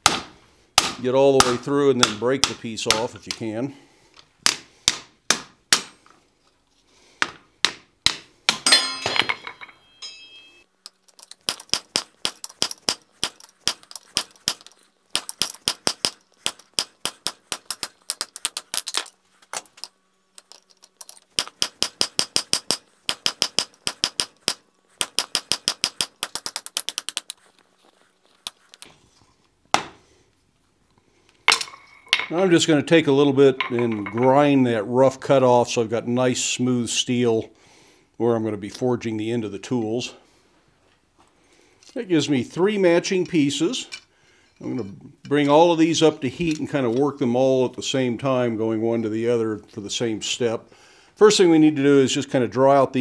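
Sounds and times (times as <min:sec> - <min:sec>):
hammer striking hot steel: 0:07.7 - 0:10.7
anvil ringing: 0:08.5 - 0:10.7.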